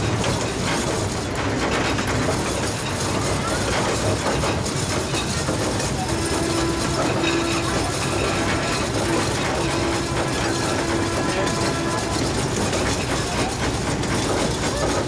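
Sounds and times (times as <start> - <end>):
train wheels rumbling on track: 0.0 - 15.0
steady hum: 4.9 - 14.2.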